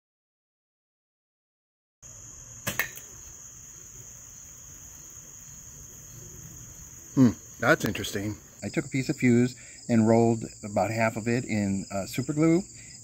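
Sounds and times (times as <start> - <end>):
crickets chirring: 2.0 - 13.0
sharp click: 2.6 - 3.1.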